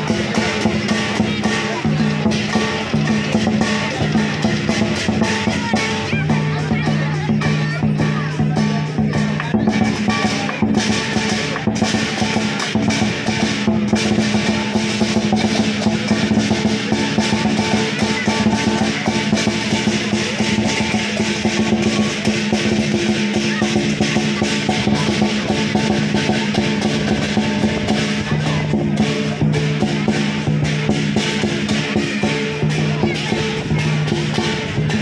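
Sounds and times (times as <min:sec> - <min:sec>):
cymbals crashing: 0:00.0 - 0:35.0
large drum beating fast: 0:00.0 - 0:35.0.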